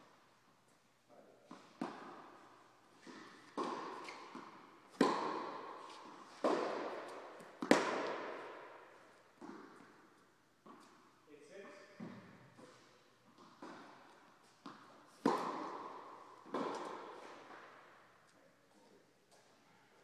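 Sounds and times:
tennis balls bouncing on court: 0:01.4 - 0:11.0, 0:13.2 - 0:18.1
tennis balls struck by rackets: 0:01.5 - 0:11.0, 0:12.0 - 0:18.2.

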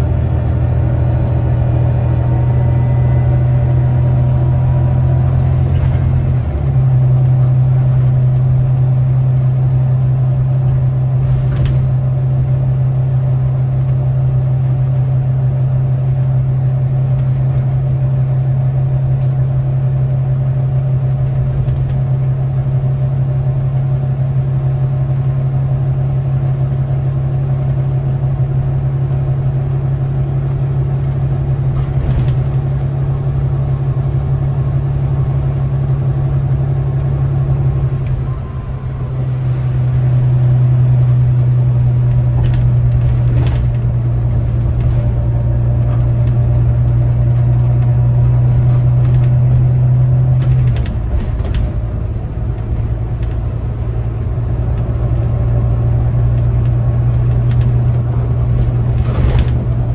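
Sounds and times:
bus diesel engine drone: 0:00.0 - 0:59.9
faint rattles: 0:57.2 - 0:59.9.

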